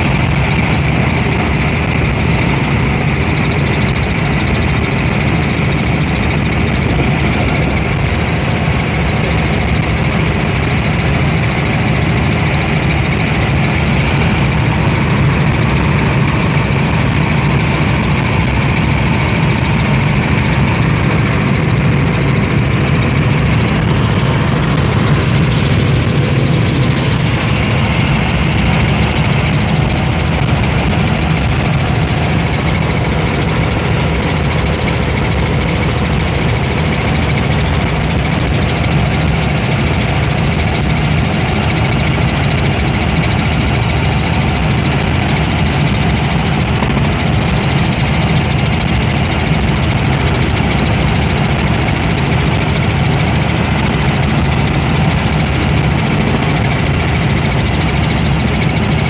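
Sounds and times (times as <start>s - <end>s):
helicopter engine and rotor drone: 0.0s - 59.0s.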